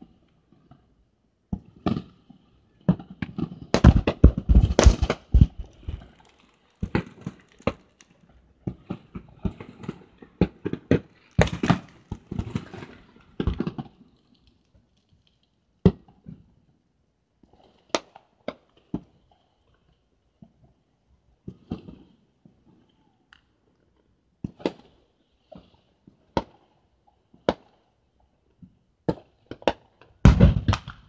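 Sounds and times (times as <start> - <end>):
fireworks popping and banging: 2.9 - 16.4, 29.1 - 31.0.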